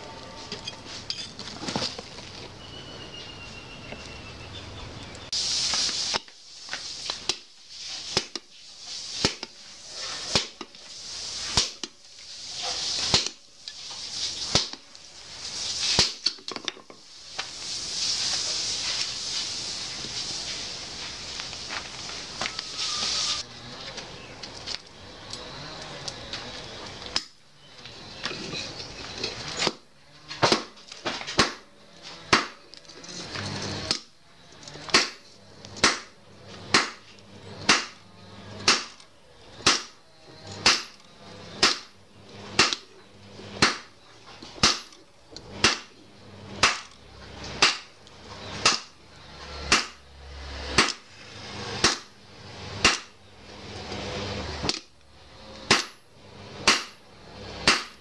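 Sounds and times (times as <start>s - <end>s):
hammer striking metal on anvil: 55.7s - 56.0s, 56.6s - 57.0s, 57.6s - 58.0s.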